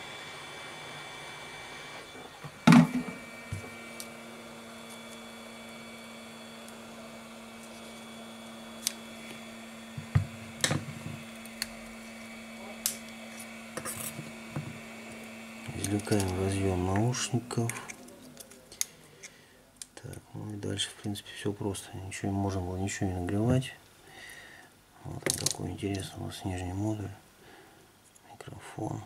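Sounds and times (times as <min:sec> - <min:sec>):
hot-air gun blowing: 0:00.0 - 0:18.0
steady hum: 0:00.0 - 0:29.0
loud knock of tool set down: 0:02.7 - 0:03.2.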